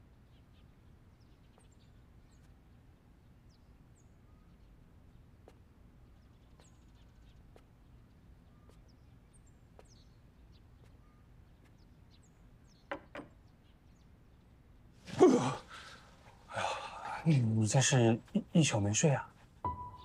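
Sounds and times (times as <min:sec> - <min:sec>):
bird chirps: 0:00.2 - 0:14.5, 0:19.7 - 0:20.0
tray knocking on wooden table: 0:12.9 - 0:13.3.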